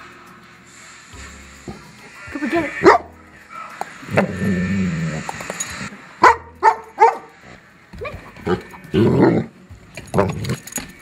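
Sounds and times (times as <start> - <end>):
dog barking: 2.8 - 3.1, 6.2 - 7.3.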